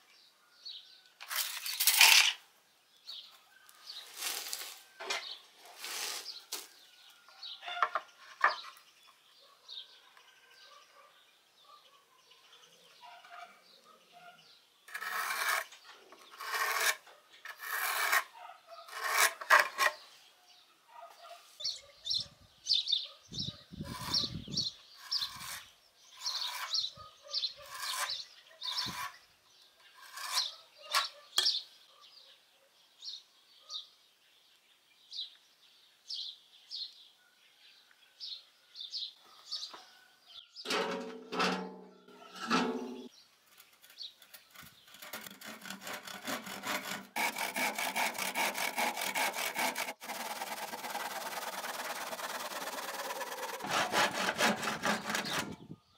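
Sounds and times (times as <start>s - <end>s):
pencil scratching on wood: 14.9s - 15.7s, 16.3s - 20.0s, 23.8s - 26.9s, 27.6s - 29.2s, 44.4s - 55.6s.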